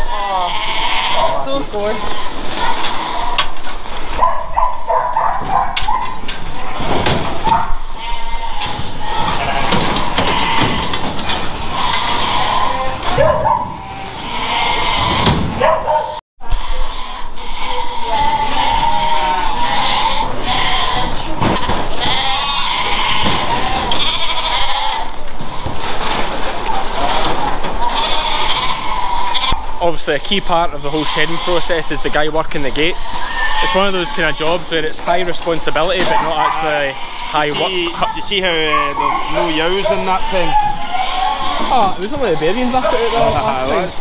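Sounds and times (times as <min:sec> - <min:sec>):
sheep bleating: 0:00.0 - 0:03.6, 0:05.5 - 0:26.0, 0:26.6 - 0:44.0.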